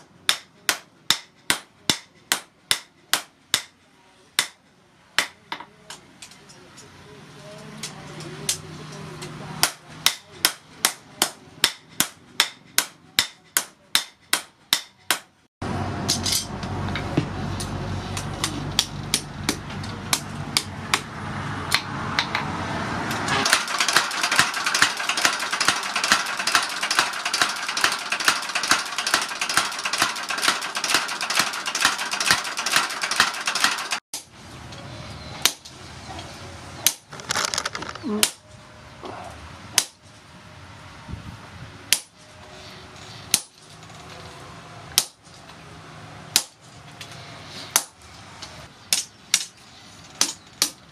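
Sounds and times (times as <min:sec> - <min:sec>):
hammer striking hot steel on anvil: 0:09.6 - 0:15.3.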